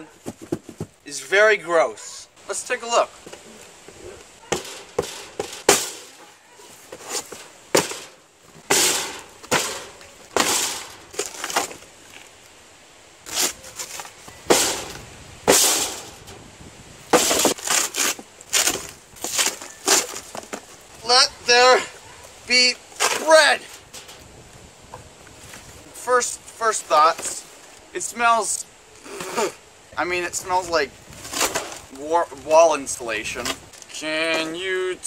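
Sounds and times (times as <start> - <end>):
cardboard box tearing: 13.3 - 14.1, 17.2 - 20.4.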